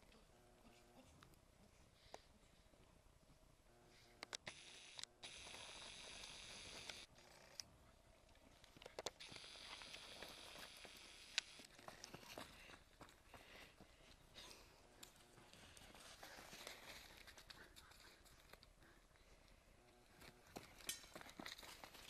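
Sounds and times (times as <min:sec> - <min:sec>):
zoom motor whirring: 0:03.7 - 0:07.7, 0:09.1 - 0:11.8.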